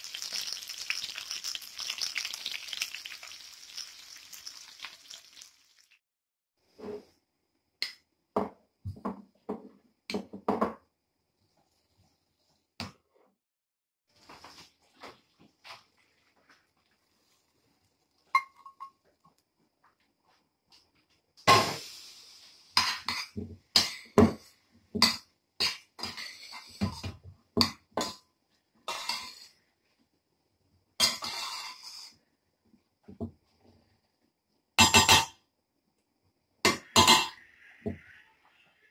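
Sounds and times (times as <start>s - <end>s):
frying sizzle: 0.0s - 6.0s, 21.4s - 23.4s.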